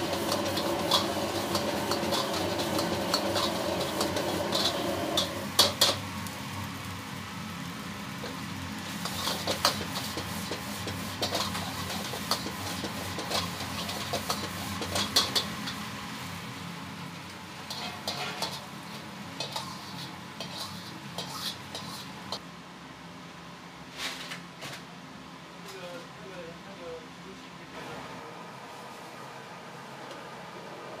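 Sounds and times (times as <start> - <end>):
frying sizzle: 0.0 - 22.4.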